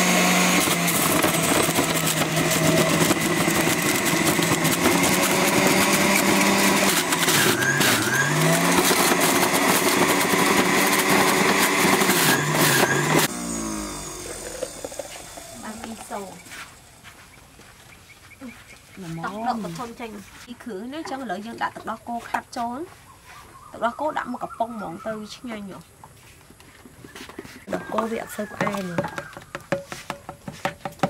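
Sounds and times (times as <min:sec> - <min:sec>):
carrots being shredded: 0:00.0 - 0:16.8
electric juicer motor humming: 0:00.0 - 0:17.0, 0:27.7 - 0:29.7.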